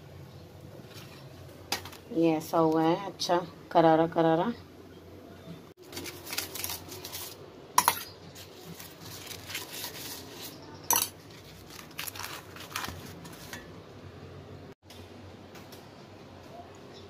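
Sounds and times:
spoon scraping over flatbread: 8.3 - 13.7
spoon clinking on metal plate: 10.9 - 11.2.

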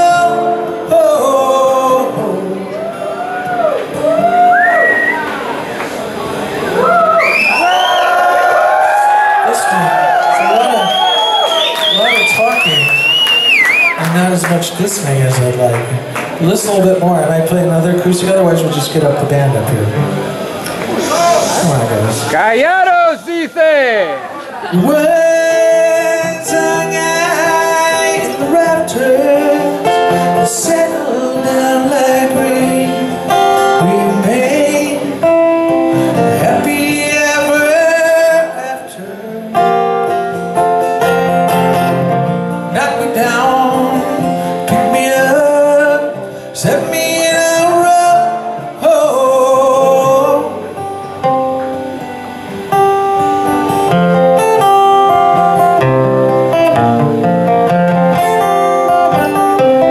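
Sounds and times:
man singing: 0.0 - 3.1, 24.7 - 40.2, 41.7 - 50.9, 58.7 - 59.9
strummed acoustic guitar: 0.0 - 3.1, 13.9 - 22.4, 24.2 - 59.9.

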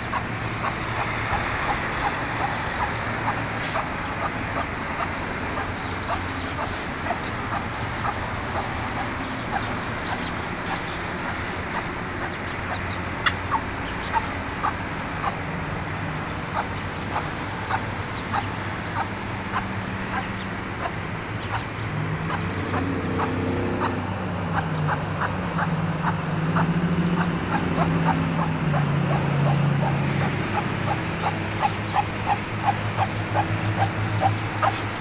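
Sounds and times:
steady low hum: 0.0 - 25.0
ducklings peeping: 0.0 - 35.0.

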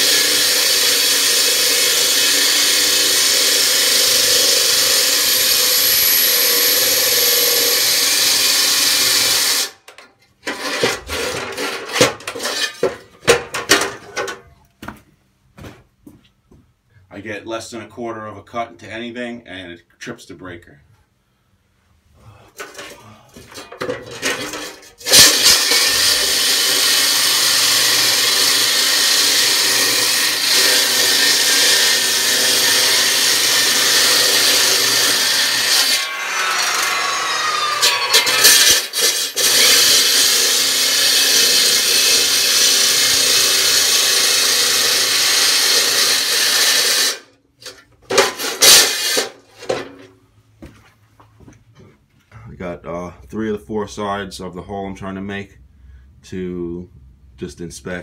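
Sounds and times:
power saw grinding concrete: 0.0 - 9.8, 10.4 - 14.4, 22.6 - 49.9.

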